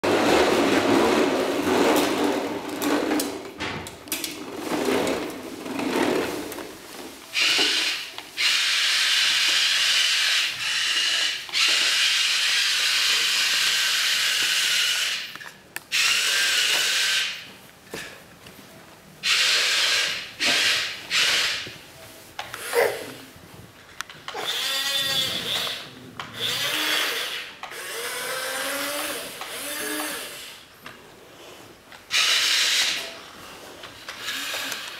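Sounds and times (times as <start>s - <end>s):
toy electric motors whirring: 7.3s - 17.5s, 19.2s - 21.8s, 22.4s - 23.2s, 24.2s - 30.7s, 32.1s - 33.2s, 33.9s - 34.9s.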